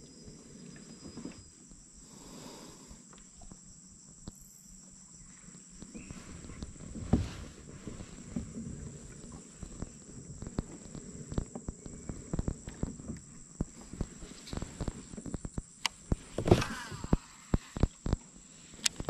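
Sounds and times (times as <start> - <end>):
high insect drone: 0.0 - 19.0
fishing gear clicks and knocks: 7.9 - 18.2.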